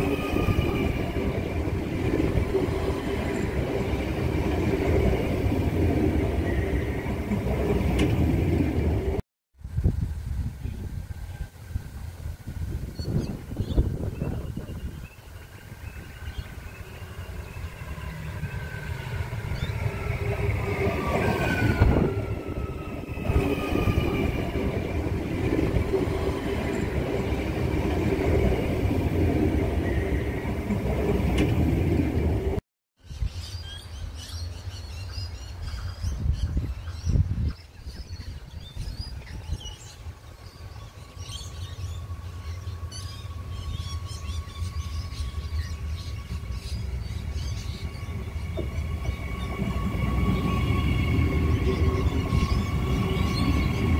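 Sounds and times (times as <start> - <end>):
train wheels rumbling: 0.0 - 9.2, 11.1 - 32.6, 39.0 - 53.9
distant train whine: 0.0 - 32.6, 38.7 - 53.9
birds chirping: 13.0 - 53.9.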